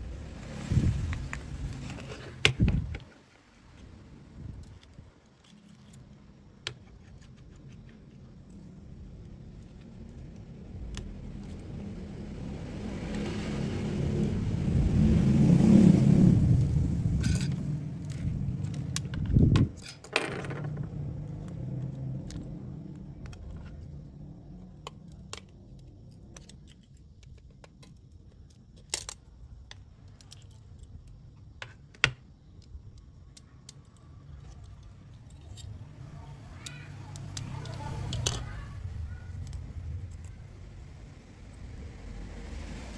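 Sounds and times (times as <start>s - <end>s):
low rumble: 8.8s - 19.8s, 37.2s - 42.9s.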